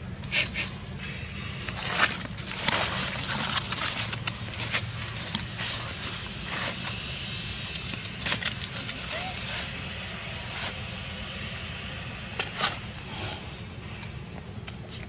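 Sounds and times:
steady low hum: 0.0s - 15.0s
footsteps on dry leaves: 1.6s - 7.0s.

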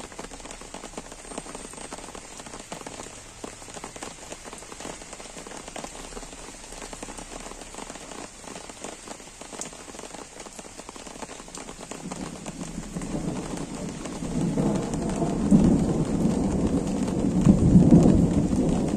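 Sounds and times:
gentle rain on trees and grass: 0.0s - 18.9s
low rumble of thunder: 11.8s - 18.9s.

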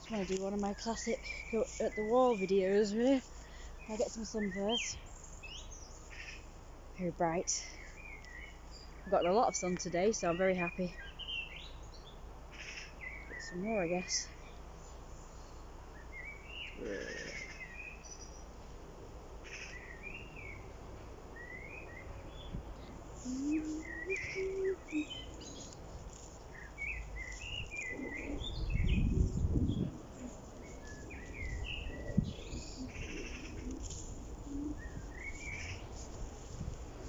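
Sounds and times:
birds chirping and singing: 0.0s - 6.4s, 21.4s - 36.8s.

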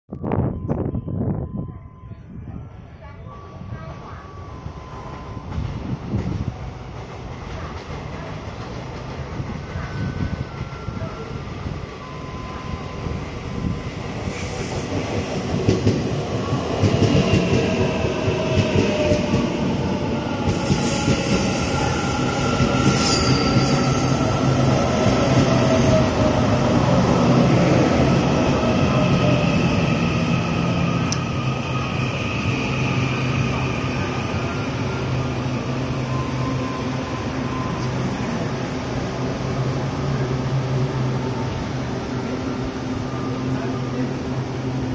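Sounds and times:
train wheels rumbling: 3.8s - 44.9s
brief high squeal: 22.8s - 24.0s.

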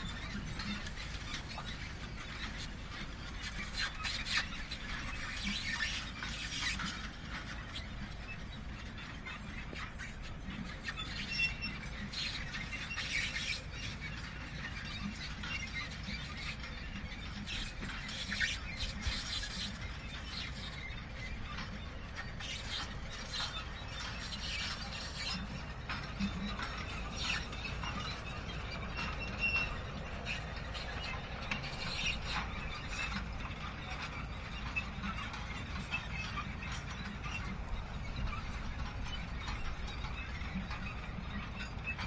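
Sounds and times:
manure spreader rattling and clicking: 0.0s - 42.0s
low machine rumble: 13.6s - 42.0s.

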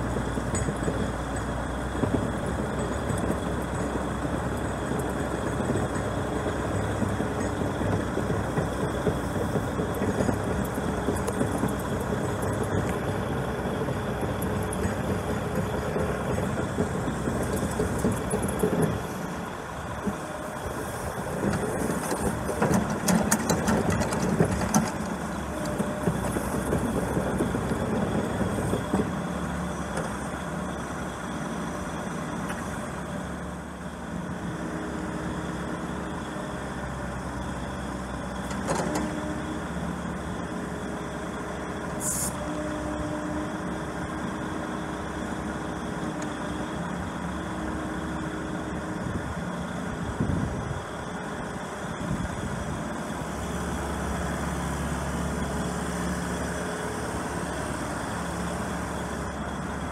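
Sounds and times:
diesel engine under load: 0.0s - 59.9s
brief hiss: 42.0s - 42.4s.

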